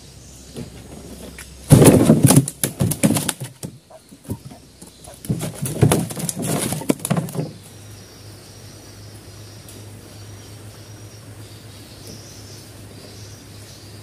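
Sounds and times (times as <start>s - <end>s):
fish slapping against wooden boat: 1.7s - 7.6s.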